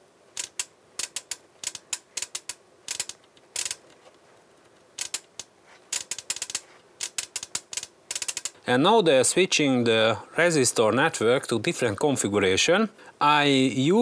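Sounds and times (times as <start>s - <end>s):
relays clicking: 0.4s - 8.6s.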